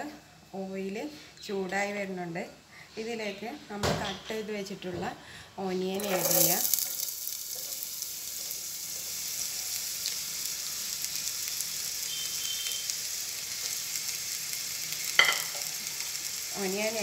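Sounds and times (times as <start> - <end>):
onions sizzling in hot oil: 5.6 - 17.0.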